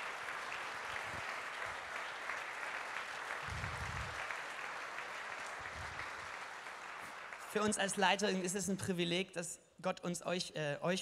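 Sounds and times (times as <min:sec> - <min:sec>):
congregation applauding: 0:00.0 - 0:08.1.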